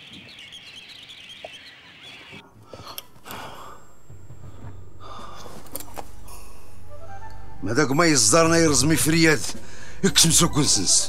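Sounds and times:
small birds chirping: 0:00.0 - 0:02.5
low steady drone music: 0:02.9 - 0:11.0.

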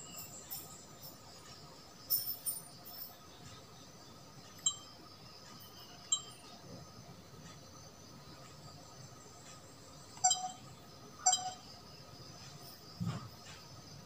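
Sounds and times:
short high electronic beeps: 0:10.2 - 0:10.7, 0:11.3 - 0:11.7.

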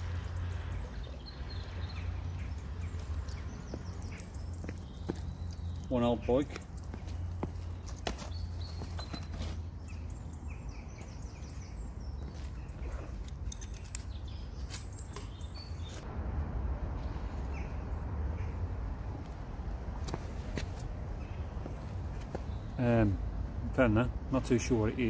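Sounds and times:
small birds chirping: 0:00.0 - 0:16.0, 0:17.4 - 0:25.0
steady low rumble: 0:16.0 - 0:23.7.

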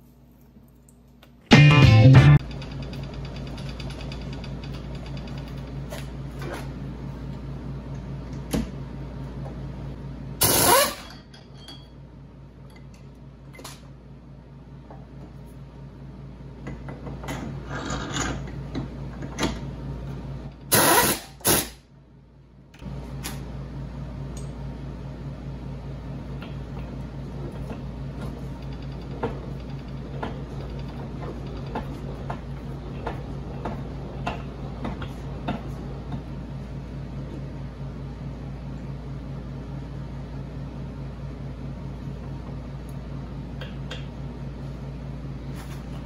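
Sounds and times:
bench mill motor hum: 0:22.7 - 0:46.0.

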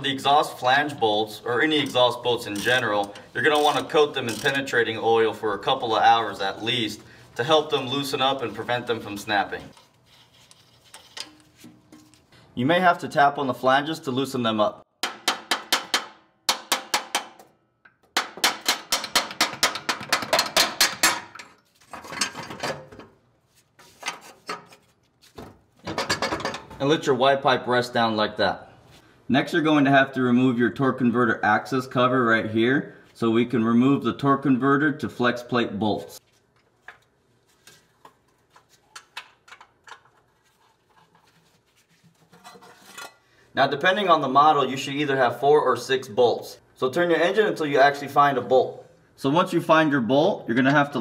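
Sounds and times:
clunks of pipe being handled: 0:09.7 - 0:12.3, 0:17.1 - 0:23.2, 0:23.8 - 0:26.8, 0:36.6 - 0:43.3.

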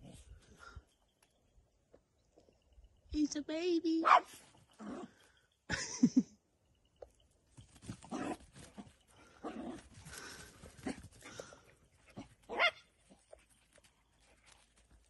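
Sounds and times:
dog barking: 0:04.0 - 0:04.3, 0:12.5 - 0:12.9.

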